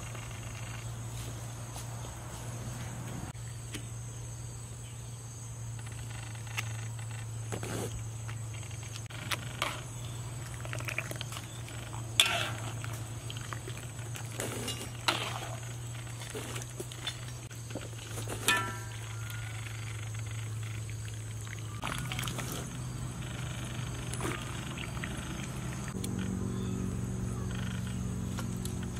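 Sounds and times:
steady low hum: 0:00.0 - 0:28.9
metal ladle clinking on pot: 0:18.4 - 0:19.4.

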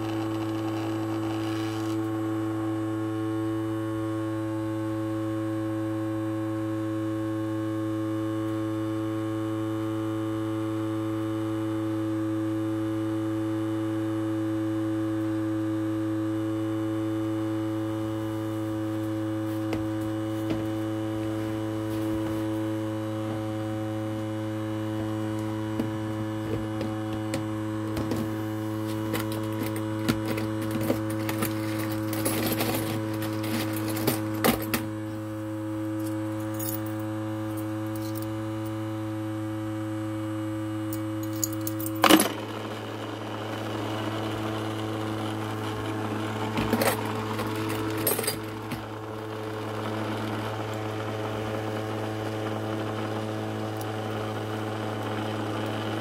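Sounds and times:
ultrasonic cleaner humming: 0:00.0 - 0:56.0.

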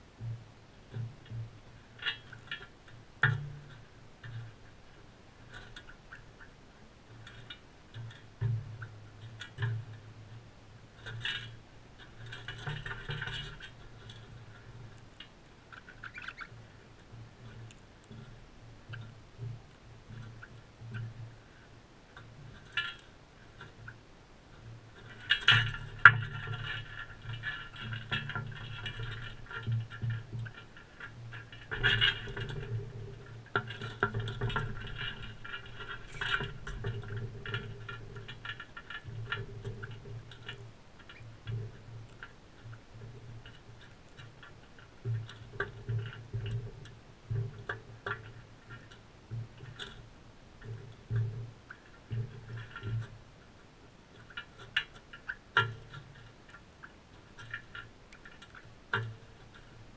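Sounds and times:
beaks scratching on bowl: 0:15.7 - 0:16.8.

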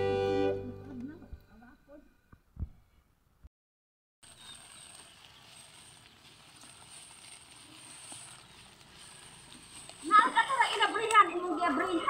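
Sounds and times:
wood fire crackles: 0:04.3 - 0:12.0.

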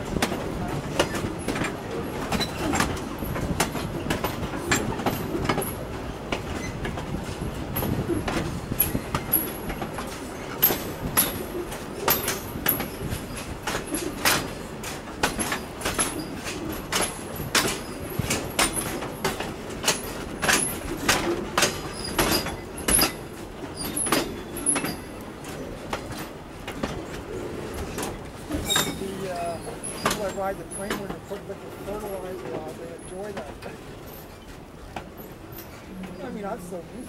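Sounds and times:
train wheels clacking on rail joints: 0:00.0 - 0:37.0
faint high squeaks: 0:28.5 - 0:30.5.

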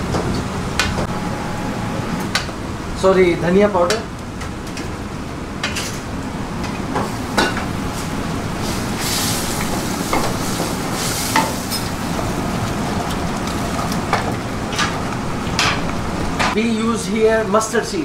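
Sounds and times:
sauce sizzling in a pot: 0:07.1 - 0:14.1.

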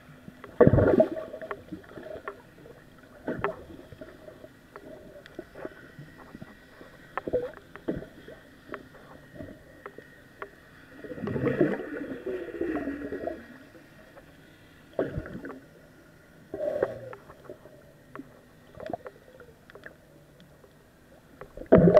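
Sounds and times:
underwater bubbling: 0:00.0 - 0:21.9
muffled underwater clicks and knocks: 0:00.3 - 0:11.8, 0:16.7 - 0:21.9.

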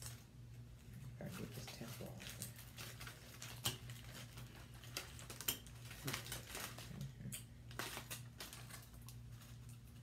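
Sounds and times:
aluminium foil crinkling: 0:00.0 - 0:10.0
low steady hum: 0:00.0 - 0:10.0.

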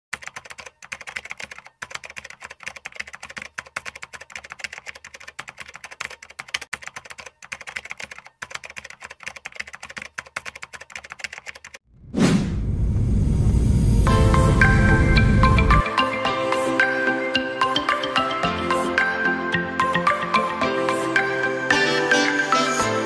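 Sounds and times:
keyboard typing clicks: 0:00.1 - 0:11.8
whoosh: 0:11.9 - 0:15.6
music: 0:14.0 - 0:23.0.

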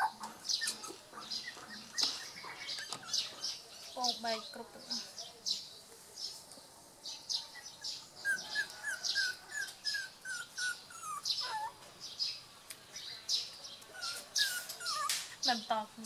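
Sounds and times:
puppies squeaking and whimpering: 0:00.0 - 0:03.7, 0:07.6 - 0:11.9, 0:13.9 - 0:15.4.

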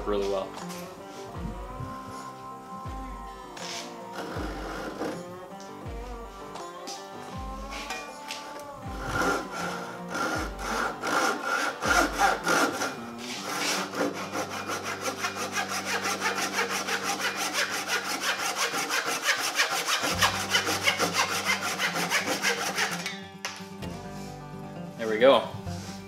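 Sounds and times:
hand saw cutting wood: 0:03.6 - 0:05.3, 0:08.9 - 0:23.2.

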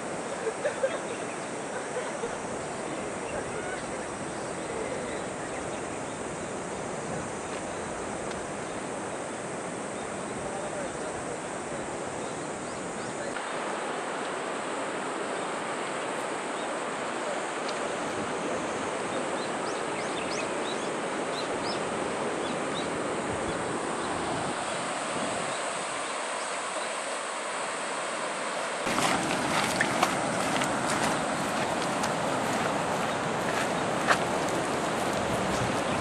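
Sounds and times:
river water rushing: 0:00.0 - 0:36.0.

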